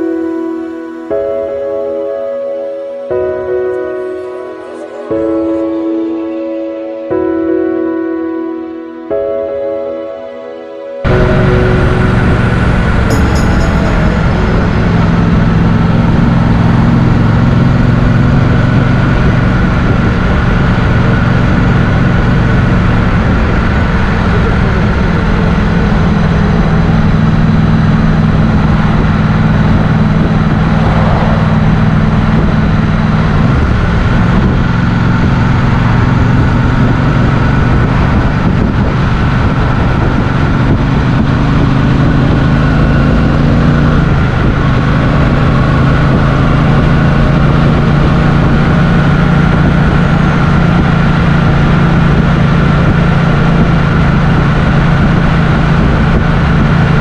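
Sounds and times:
motorcycle engine running: 11.1 - 57.0.

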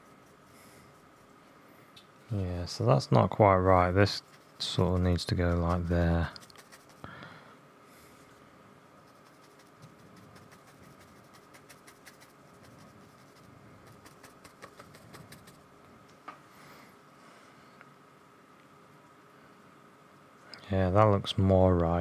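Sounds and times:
paintbrush scratching on paper: 0.0 - 1.3, 3.7 - 7.0, 9.0 - 15.6.

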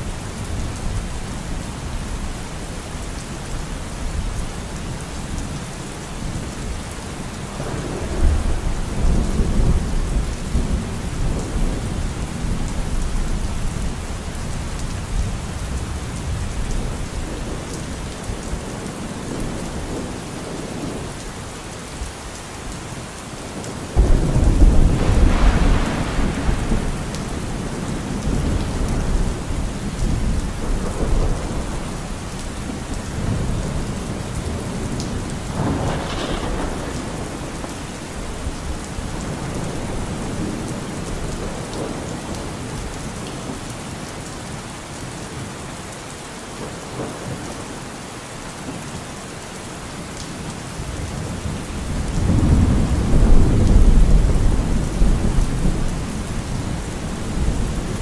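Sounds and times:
steady rain: 0.0 - 58.0
rolling thunder: 7.6 - 13.9, 24.0 - 42.5, 51.0 - 58.0.

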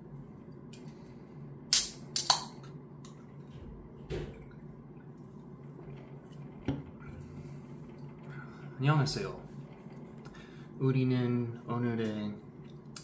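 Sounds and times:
can opening crack and hiss: 1.7 - 2.6.

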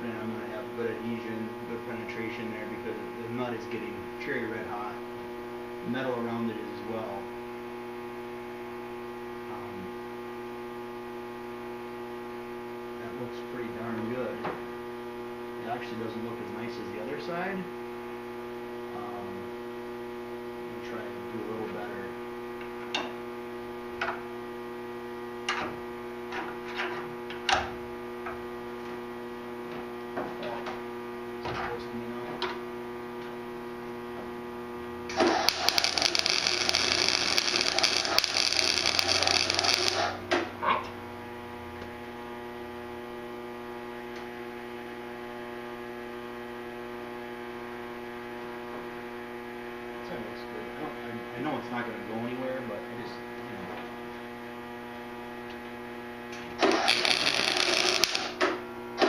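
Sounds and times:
electrical hum: 0.0 - 59.0
arc welder crackling hiss: 35.1 - 40.3, 56.6 - 58.4.

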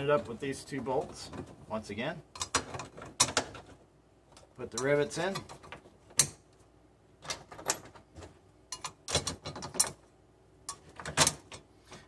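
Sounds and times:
metallic clicks of rivets: 2.3 - 6.6, 7.2 - 12.0.

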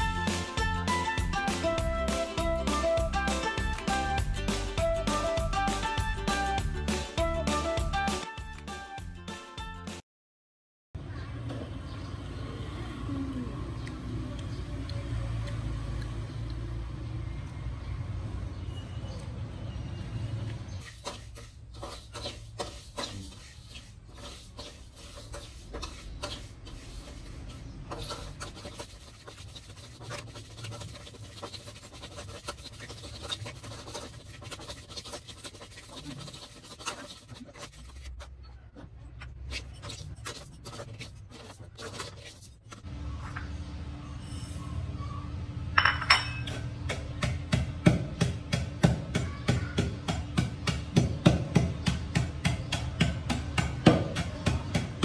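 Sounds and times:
metal spatula scraping rice in wok: 20.7 - 38.4.

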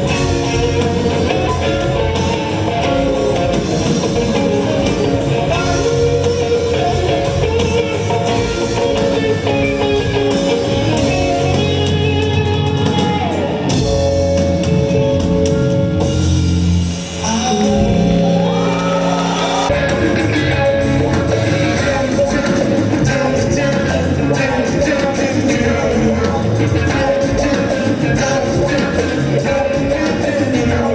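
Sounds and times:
rock band playing: 0.0 - 30.9
person singing: 17.2 - 30.9.

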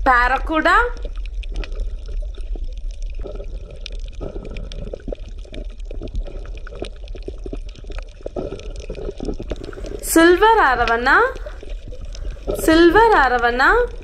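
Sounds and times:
underwater bubbling and gurgling: 0.0 - 14.0.

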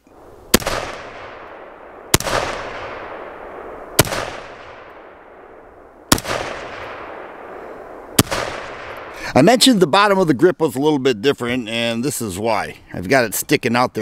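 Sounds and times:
rifle shots with echo: 0.5 - 9.2.

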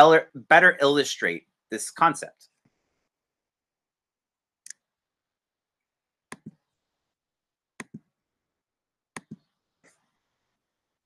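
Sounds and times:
computer mouse clicks: 6.3 - 6.6, 7.8 - 8.1, 9.2 - 10.0.

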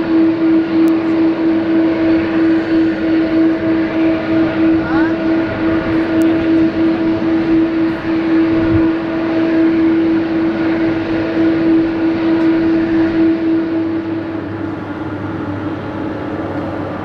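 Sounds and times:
jet engines droning: 0.0 - 17.0.

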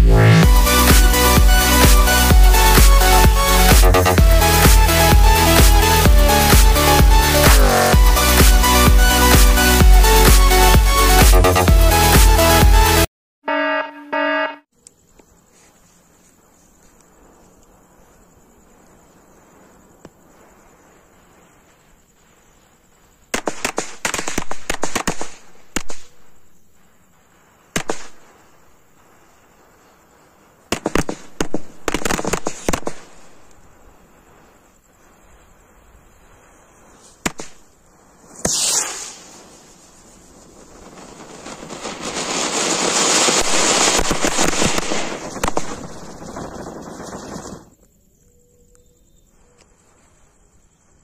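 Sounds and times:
fireworks crackers hissing: 0.4 - 13.0, 18.6 - 47.9
firecrackers banging: 0.5 - 10.6, 37.0 - 47.8
firework sharp cracks: 23.0 - 26.5, 27.2 - 34.5, 36.8 - 47.8.

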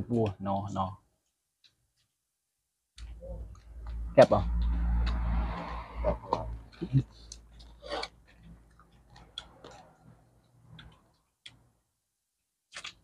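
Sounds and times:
person chewing food: 6.7 - 11.7, 12.7 - 13.0
small crunching clicks: 12.7 - 13.0.

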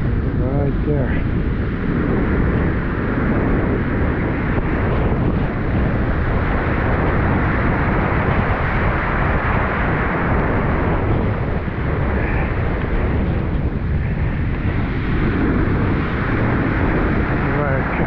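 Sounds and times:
surf rushing foaming water: 0.0 - 18.0.

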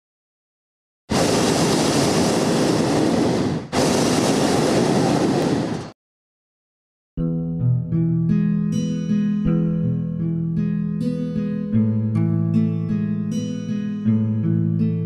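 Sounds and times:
propane burner blasts: 1.1 - 5.9.

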